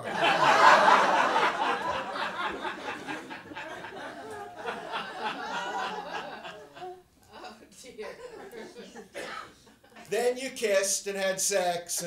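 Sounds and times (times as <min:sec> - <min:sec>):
audience laughing: 0:00.0 - 0:10.2.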